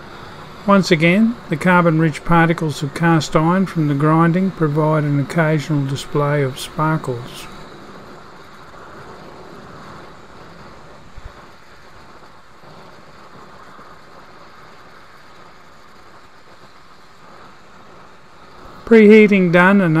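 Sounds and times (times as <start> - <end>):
torch flame hissing: 0.0 - 20.0.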